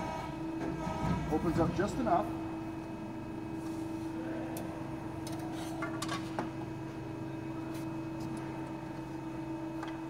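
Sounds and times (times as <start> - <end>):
hydraulic pump humming: 0.0 - 10.0.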